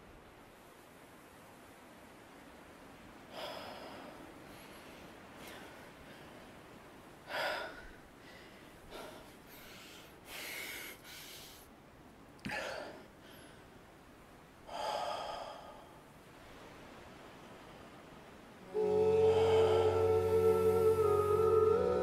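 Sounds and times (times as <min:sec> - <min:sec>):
man breathing heavily: 0:03.3 - 0:11.7, 0:14.7 - 0:16.0, 0:18.7 - 0:20.8.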